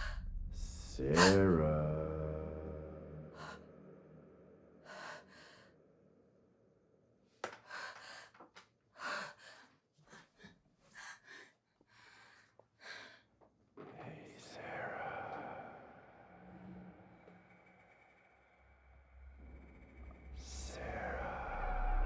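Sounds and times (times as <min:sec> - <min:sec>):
woman gasping: 0:01.2 - 0:01.4
woman breathing frightened: 0:07.6 - 0:13.3.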